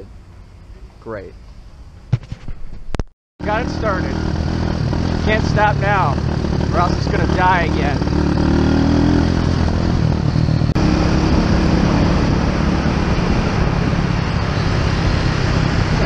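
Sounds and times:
wind and road noise: 0:00.0 - 0:16.0
small motorbike engine running: 0:03.5 - 0:12.4.

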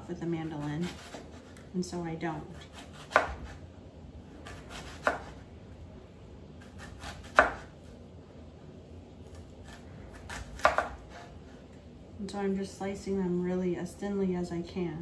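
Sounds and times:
knife slicing onion: 0:00.2 - 0:01.7, 0:02.3 - 0:03.7, 0:04.3 - 0:05.5, 0:06.6 - 0:07.9, 0:09.2 - 0:11.6.

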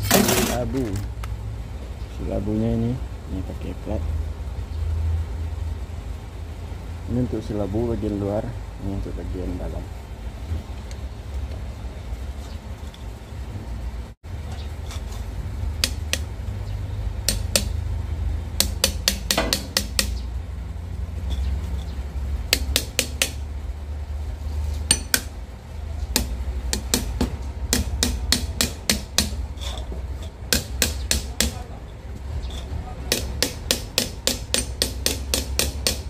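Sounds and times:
wrench tapping on steel: 0:15.8 - 0:16.3, 0:17.2 - 0:17.8, 0:18.6 - 0:20.2, 0:22.5 - 0:23.4, 0:24.9 - 0:25.3, 0:26.1 - 0:31.7, 0:32.5 - 0:36.0.

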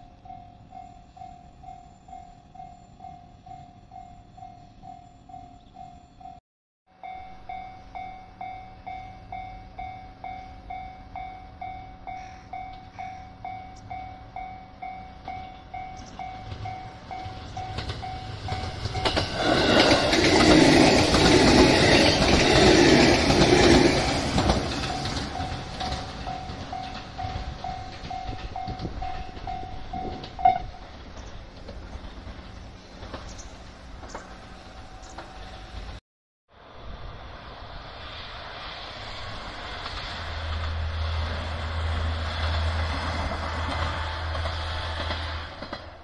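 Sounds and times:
level-crossing warning bell ringing: 0:00.0 - 0:30.8
electric train passing: 0:00.0 - 0:46.0.

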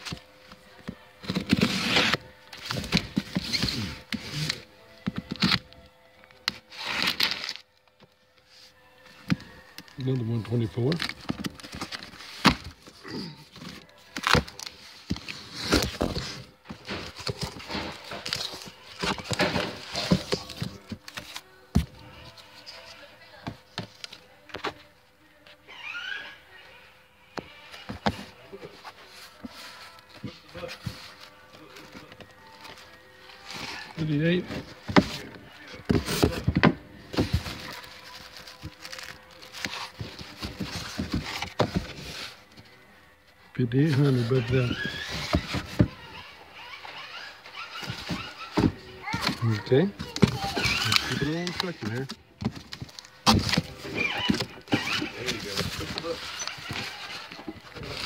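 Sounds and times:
cardboard box rustling and scraping: 0:01.2 - 0:05.7, 0:10.4 - 0:22.3, 0:27.8 - 0:42.6, 0:43.7 - 0:58.0.

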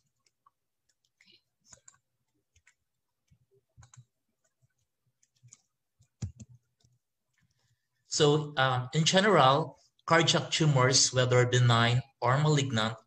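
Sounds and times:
faint irregular clicks: 0:00.0 - 0:07.8.

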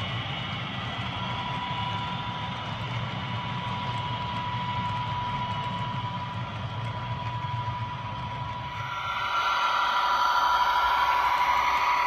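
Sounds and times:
model train humming and whining: 0:08.2 - 0:12.0.

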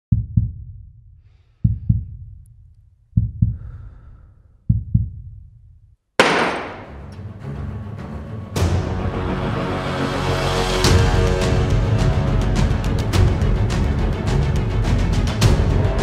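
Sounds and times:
heartbeat thumps: 0:00.1 - 0:01.0, 0:01.6 - 0:02.5, 0:03.1 - 0:03.8, 0:04.6 - 0:05.7
sudden loud hit: 0:06.2 - 0:07.1
dramatic background music: 0:06.2 - 0:16.0.

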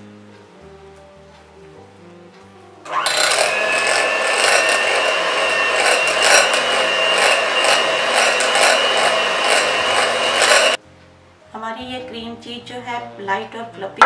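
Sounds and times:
hand mixer motor whine: 0:02.9 - 0:10.8.

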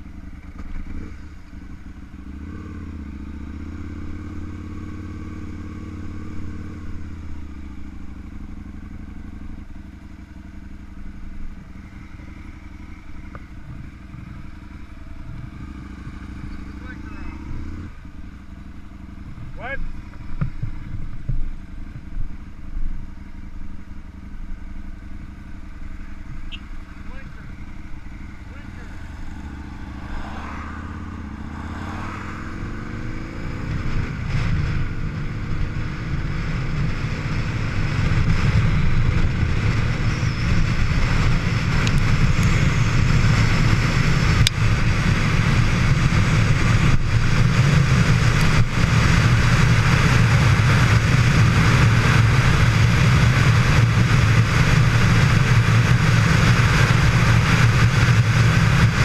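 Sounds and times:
motorcycle engine accelerating: 0:00.0 - 0:59.0
wind rush: 0:27.6 - 0:59.0.

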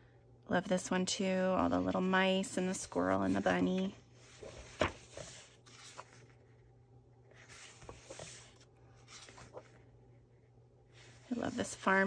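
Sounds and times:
paper page rustling and sliding: 0:01.8 - 0:09.9, 0:10.9 - 0:12.0.

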